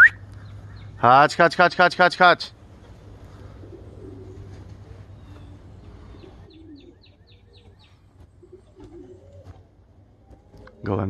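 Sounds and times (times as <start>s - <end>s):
steady low hum: 0.0s - 11.0s
pigeons cooing: 2.6s - 11.0s.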